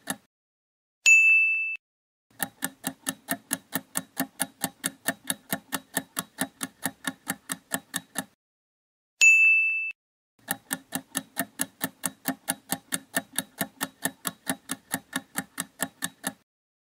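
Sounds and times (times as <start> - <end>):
countdown timer ticking: 2.3 - 8.3, 10.4 - 16.4.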